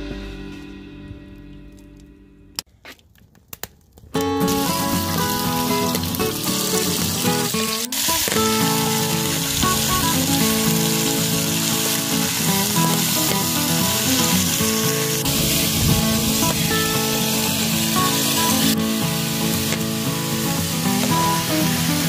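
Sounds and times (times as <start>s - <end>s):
background music: 4.2s - 22.0s
meat sizzling in a pot: 4.4s - 22.0s.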